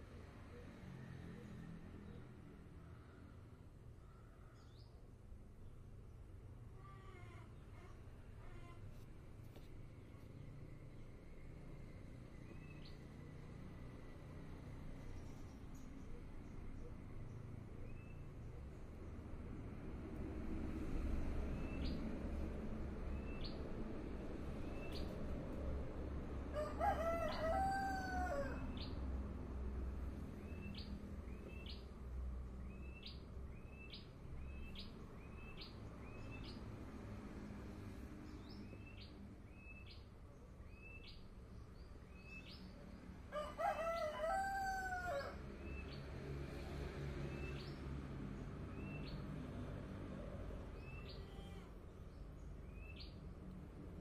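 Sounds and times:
rooster crowing: 26.5s - 28.8s, 43.3s - 45.4s.

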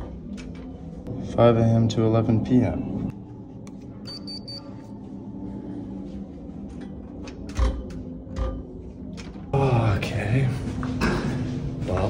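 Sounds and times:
mechanical hum: 0.0s - 12.0s
high electronic beep: 4.0s - 4.7s.

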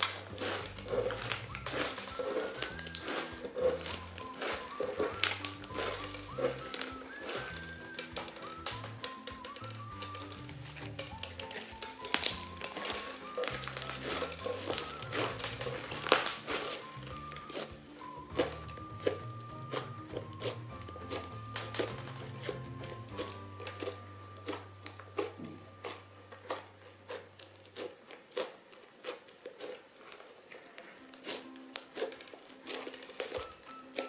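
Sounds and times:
background music: 0.0s - 27.8s, 31.0s - 34.0s
crunchy slime crackling: 0.0s - 34.0s.

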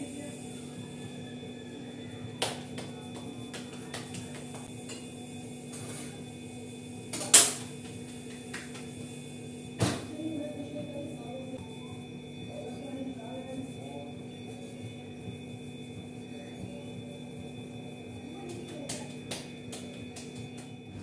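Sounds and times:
steady hum: 0.0s - 21.0s
hands patting dough: 2.4s - 4.7s, 18.4s - 20.8s.

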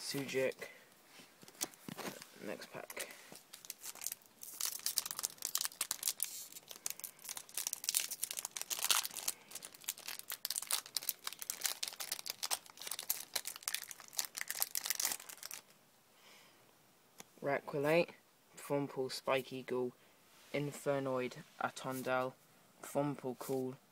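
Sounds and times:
foil wrapper crinkling and tearing: 3.4s - 15.7s.

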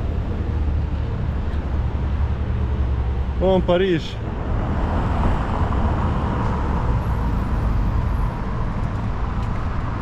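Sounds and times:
city street traffic rumble: 0.0s - 10.0s.

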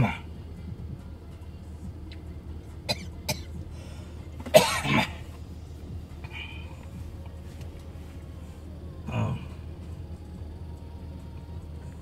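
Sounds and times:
steady low hum: 0.0s - 12.0s
person coughing loudly: 2.9s - 3.6s, 4.4s - 5.3s.

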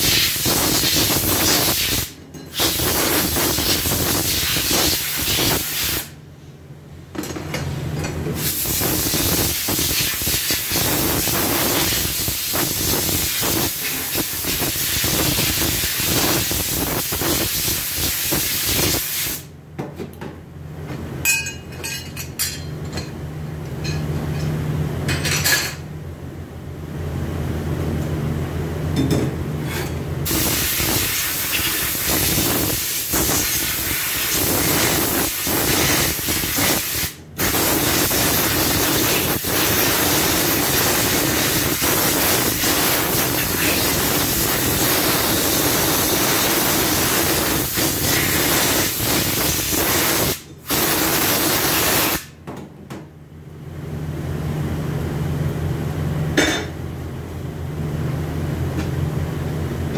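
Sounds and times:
compressed-air spray gun hissing: 0.0s - 6.1s, 8.4s - 19.5s, 30.3s - 52.3s.

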